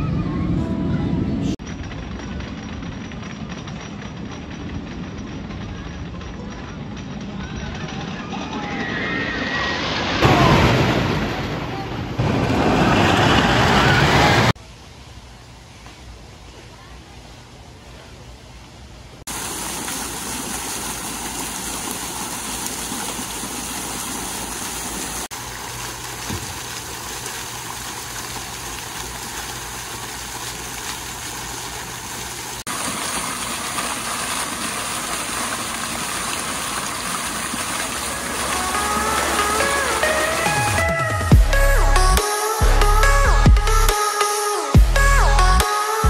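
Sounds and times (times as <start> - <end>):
fountain water splashing: 19.2 - 41.0.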